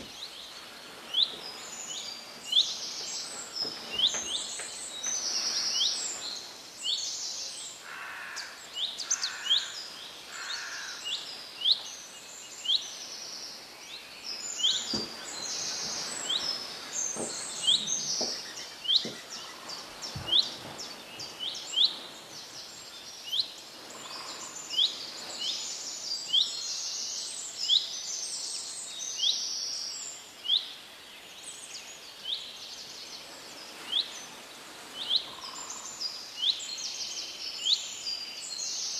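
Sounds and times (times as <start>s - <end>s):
birds chirping and singing: 0.0s - 13.1s, 13.9s - 27.9s.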